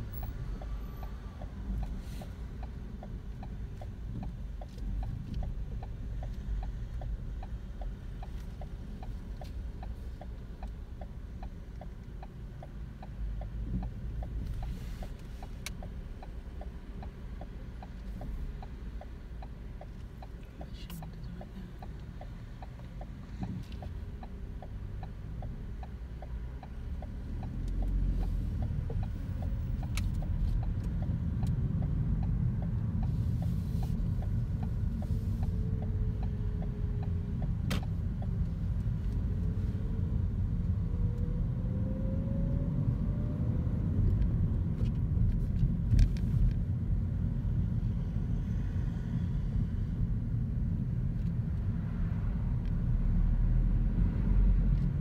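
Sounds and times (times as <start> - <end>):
road rumble: 0.0 - 55.0
turn signal ticking: 0.0 - 55.0
car engine accelerating: 11.8 - 55.0.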